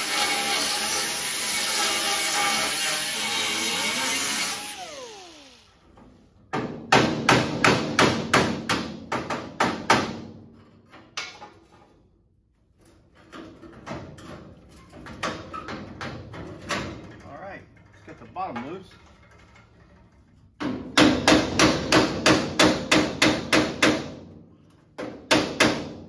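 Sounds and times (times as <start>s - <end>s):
air tool spinning down whine: 3.4s - 5.9s
metal knocks and clanks: 12.8s - 26.0s.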